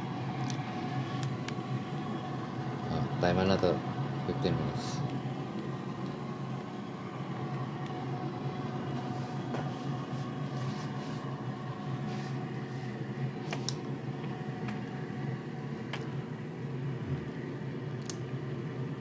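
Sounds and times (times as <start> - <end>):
air fryer fan hum: 0.0 - 19.0.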